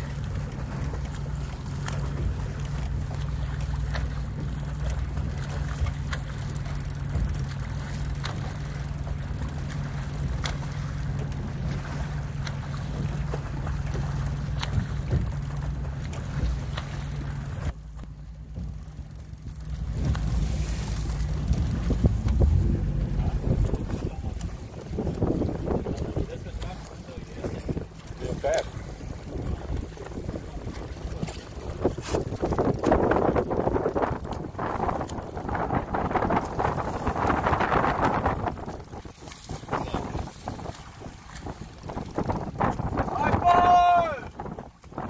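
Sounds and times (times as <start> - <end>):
boat motor humming: 0.0 - 45.0
choppy water: 0.0 - 45.0
water: 0.0 - 45.0
wind on microphone: 19.5 - 45.0.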